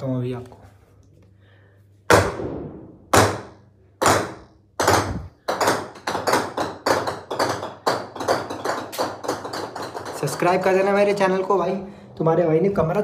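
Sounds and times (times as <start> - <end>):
golf balls bouncing on concrete: 2.9 - 11.6.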